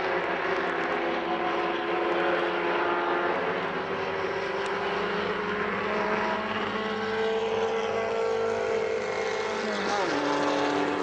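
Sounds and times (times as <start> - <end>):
passing car engine: 0.0 - 11.0
race car engines at high revs: 0.0 - 11.0.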